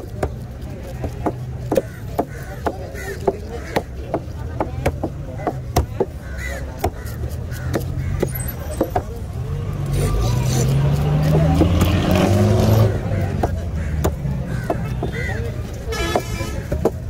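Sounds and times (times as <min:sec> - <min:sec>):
knife chopping on wooden board: 0:00.0 - 0:06.2, 0:06.8 - 0:09.1, 0:13.3 - 0:15.1.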